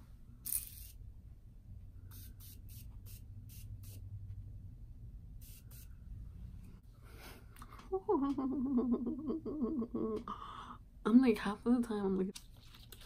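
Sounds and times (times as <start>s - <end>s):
spray can hissing sprays: 2.1s - 4.0s, 5.4s - 6.0s.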